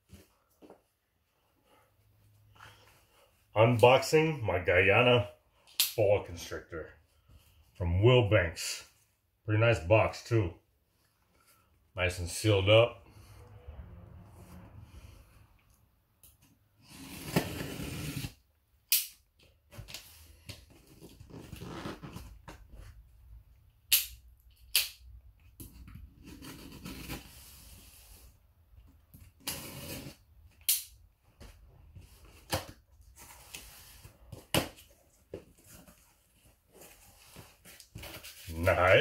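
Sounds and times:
sharp snaps and clicks: 5.7 - 6.0, 18.9 - 19.2, 23.9 - 25.1, 30.6 - 31.0
cardboard scraping and rustling: 16.8 - 18.4.

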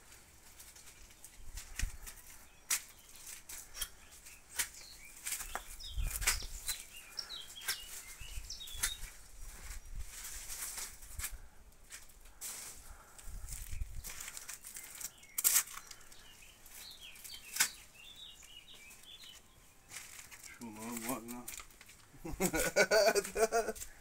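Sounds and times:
leaves rustling: 0.0 - 24.0
plant stems snapping: 1.6 - 6.9, 14.0 - 16.2, 17.2 - 17.8, 19.9 - 22.1
bird chirps: 2.0 - 10.3, 13.6 - 21.4.

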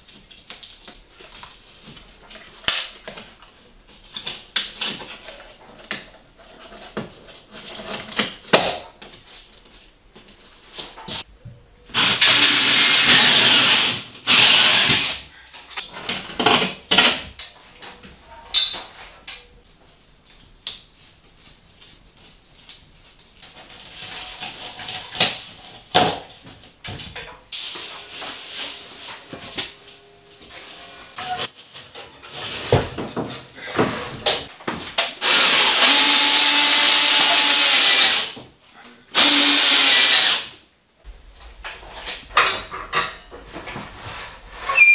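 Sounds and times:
building work knocks and clatter: 15.7 - 19.0, 32.0 - 35.1, 41.1 - 44.7.

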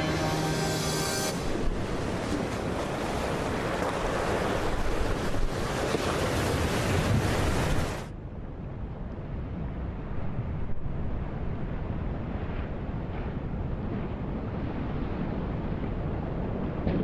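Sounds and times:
ocean waves breaking: 0.0 - 8.1.

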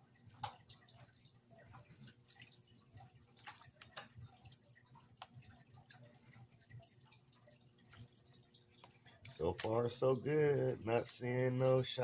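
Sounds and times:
water dripping and splashing: 0.0 - 12.0.

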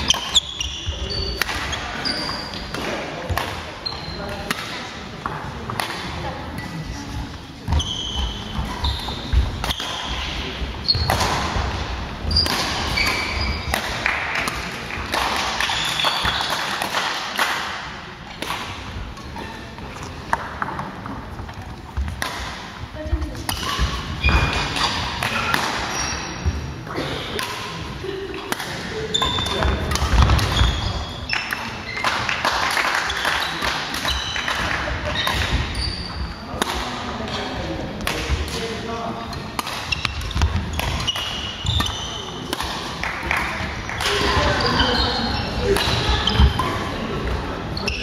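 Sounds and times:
shoes squeaking on floor: 0.0 - 2.7, 3.8 - 4.3, 7.7 - 11.3, 12.2 - 13.8, 15.6 - 16.7, 23.6 - 26.6, 29.0 - 32.2, 33.1 - 36.6, 39.2 - 42.5, 43.9 - 48.0
people talking: 0.0 - 11.8, 22.9 - 41.0, 41.6 - 48.0
shuttlecock hits: 39.5 - 44.6.

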